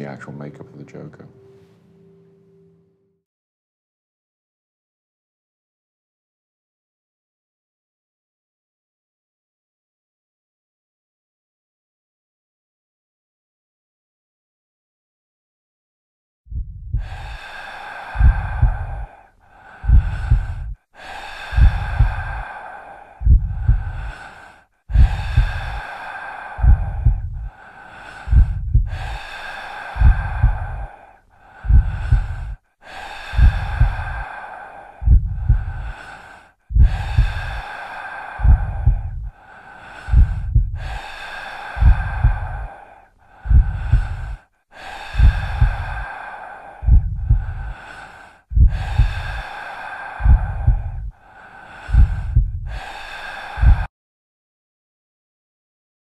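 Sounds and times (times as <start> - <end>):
heavy human breathing: 16.9 - 53.9.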